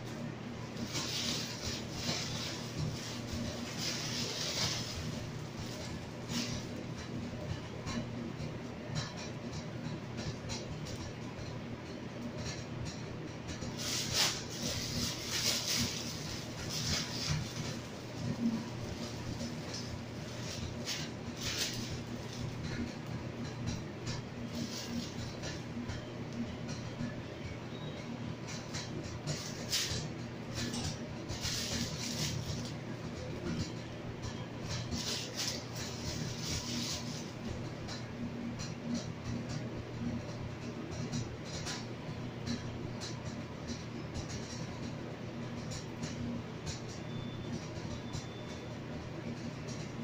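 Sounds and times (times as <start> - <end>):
low background hum: 0.0 - 50.0
plastic bag crinkling: 0.7 - 6.8, 13.8 - 22.6, 31.4 - 32.7, 34.9 - 37.4.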